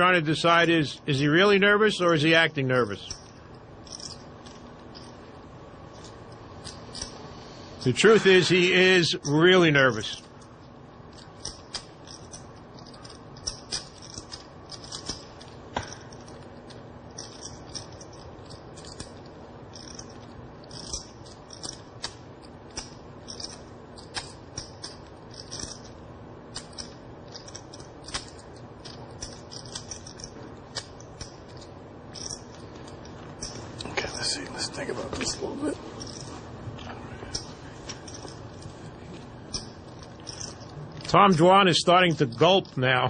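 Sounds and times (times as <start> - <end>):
clay poker chips clicking: 3.0 - 5.1, 5.9 - 7.2, 10.4 - 33.6, 36.0 - 36.3, 37.3 - 38.6, 39.5 - 41.1.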